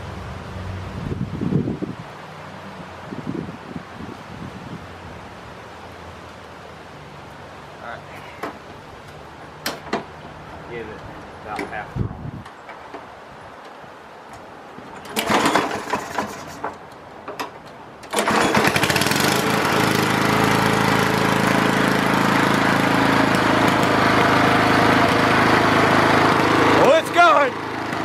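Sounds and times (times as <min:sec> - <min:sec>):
lawn mower engine starting: 0:14.8 - 0:28.0.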